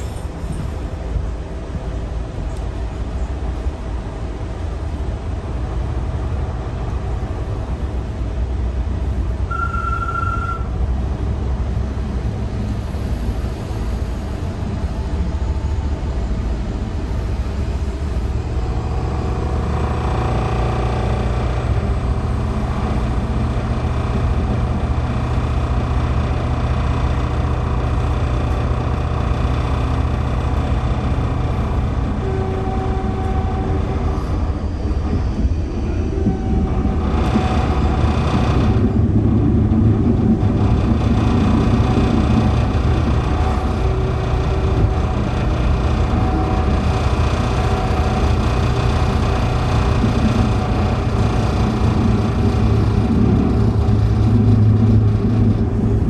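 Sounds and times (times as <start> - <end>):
train rumbling on track: 0.0 - 56.0
train whining tones: 3.2 - 56.0
short high beep: 9.5 - 10.7.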